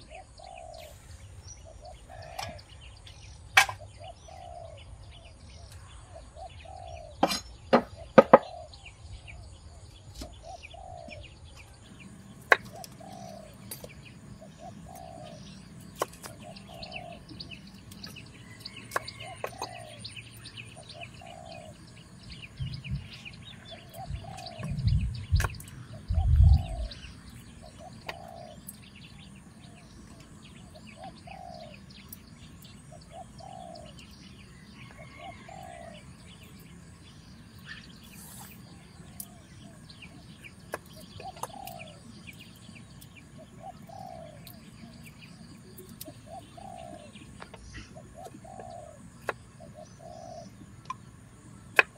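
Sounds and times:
light bird chirping: 0.0s - 51.9s.

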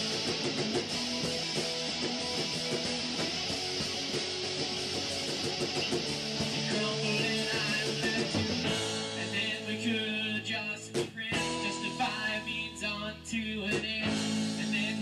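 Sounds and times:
rock song with guitar: 0.0s - 15.0s
person singing: 6.5s - 15.0s.

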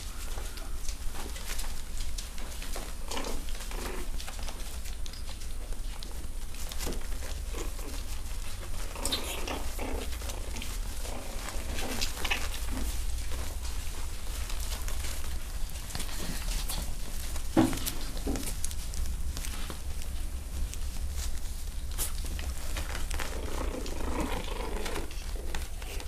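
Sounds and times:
paws scratching on floor: 0.0s - 26.0s
puppies yipping: 6.0s - 18.8s.

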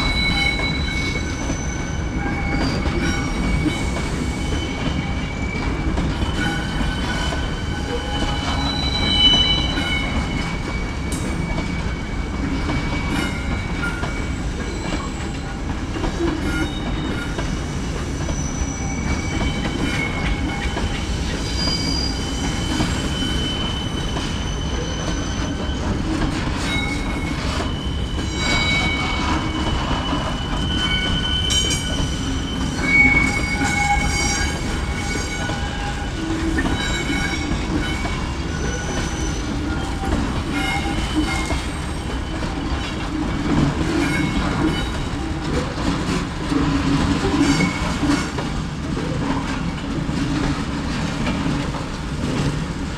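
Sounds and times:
wheel squeals: 0.0s - 48.4s
freight train rumbling past: 0.0s - 52.9s.

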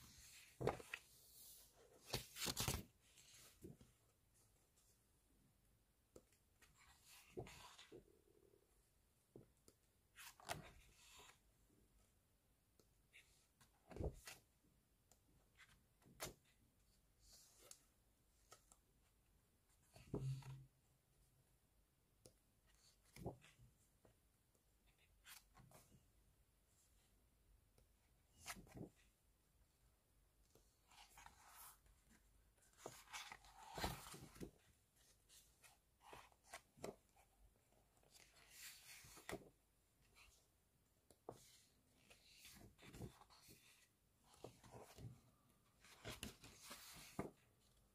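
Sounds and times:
book pages turning: 0.1s - 3.8s, 30.8s - 37.3s, 41.2s - 45.1s, 45.8s - 47.4s.

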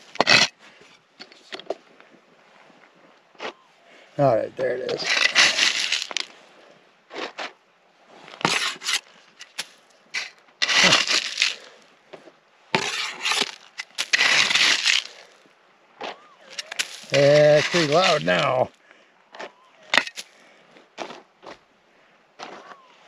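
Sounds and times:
digging tool scraping gravel: 0.0s - 0.6s, 4.8s - 6.4s, 8.3s - 11.8s, 12.8s - 15.4s, 16.4s - 18.8s, 19.9s - 20.4s.

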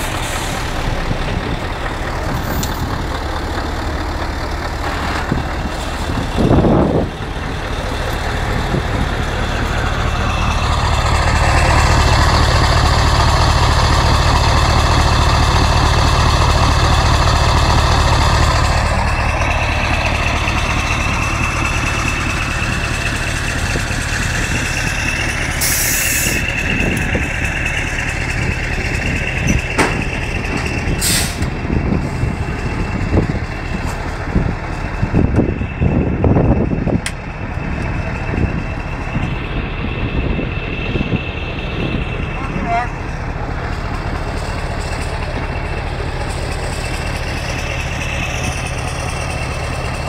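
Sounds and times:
truck diesel engine idling: 0.0s - 50.0s
air brake hisses: 25.6s - 26.3s, 31.0s - 31.5s
knocks and clunks: 28.4s - 31.6s.

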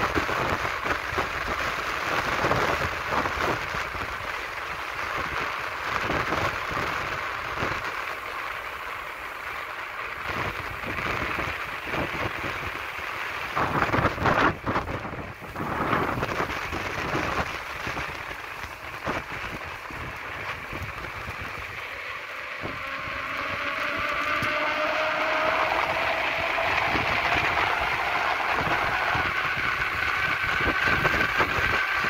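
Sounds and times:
wind buffeting microphone: 10.2s - 32.0s.

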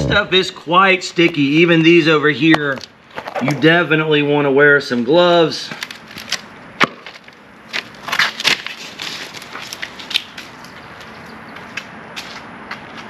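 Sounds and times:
foam crackling and crunching: 5.7s - 10.5s.

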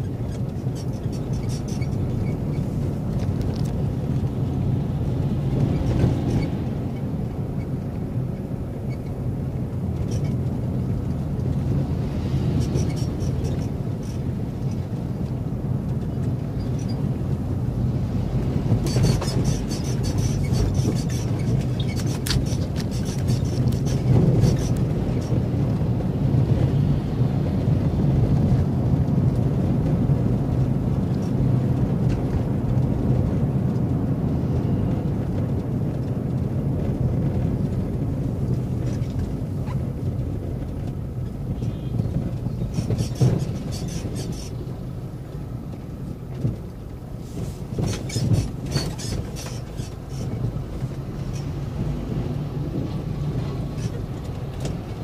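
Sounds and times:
road noise: 0.0s - 55.0s
vehicle engine drone: 0.0s - 55.0s
sharp clicks and rattles: 18.6s - 25.4s, 35.4s - 51.9s.

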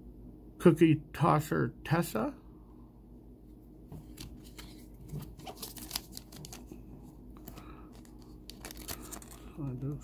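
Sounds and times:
cards shuffling: 4.0s - 6.8s, 7.4s - 10.0s
plastic bag crinkling: 4.2s - 6.8s, 7.4s - 10.0s.

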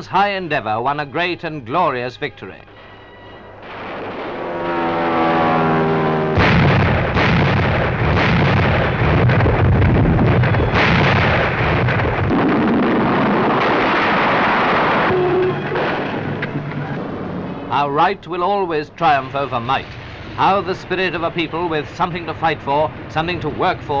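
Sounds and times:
heavy gunfire and blasts: 3.6s - 5.6s, 6.3s - 17.4s
falling whine: 3.6s - 8.0s, 9.3s - 17.8s
sharp gunshots: 3.6s - 16.6s
loud explosion: 3.6s - 17.6s.

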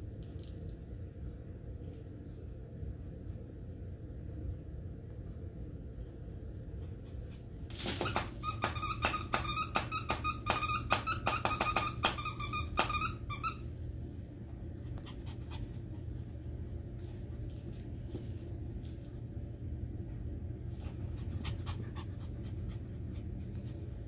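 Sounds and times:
squeaky toy squeaking: 7.8s - 13.6s.

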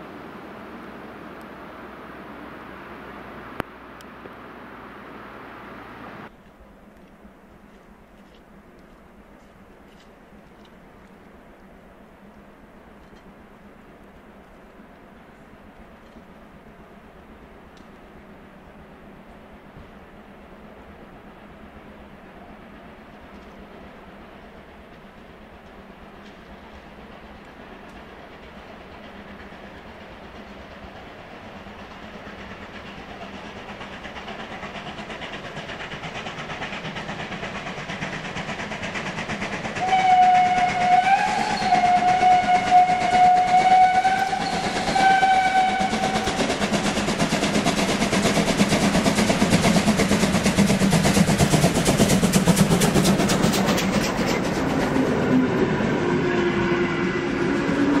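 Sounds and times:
coaches rolling on rails: 0.0s - 58.0s
steam locomotive exhaust beats: 0.0s - 58.0s
steam whistle: 39.8s - 46.4s, 55.0s - 58.0s.

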